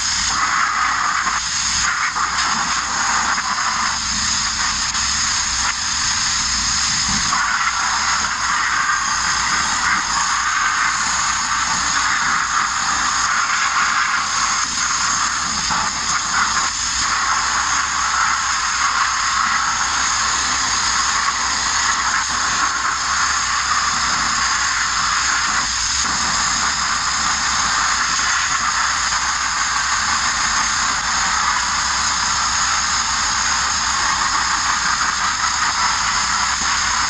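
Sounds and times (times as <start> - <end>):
abrasive blasting hiss: 0.0 - 37.0.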